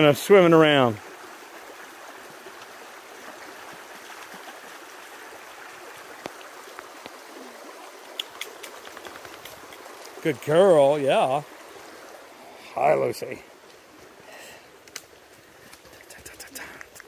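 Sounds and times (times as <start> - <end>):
forest creek flowing: 0.0 - 17.0
faint clicks: 8.1 - 10.2, 14.8 - 17.0.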